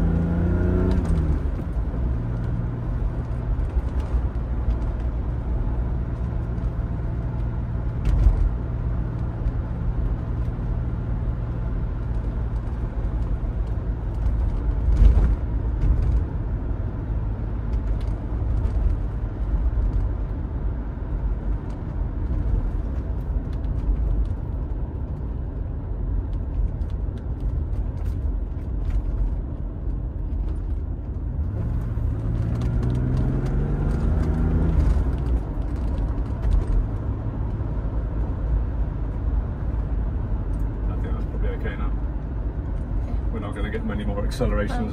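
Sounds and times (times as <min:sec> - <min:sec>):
car engine inside cabin: 0:00.0 - 0:44.9.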